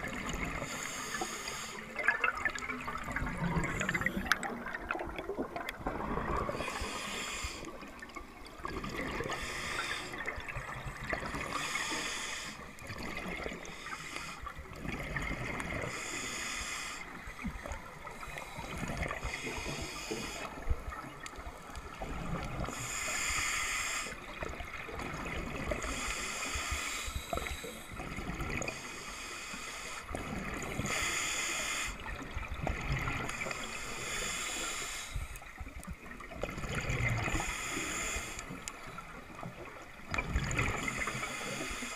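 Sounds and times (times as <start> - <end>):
air bubbles gurgling underwater: 0.0 - 0.8, 1.9 - 12.0, 14.6 - 16.0, 32.0 - 33.6, 35.6 - 37.5, 38.7 - 41.7.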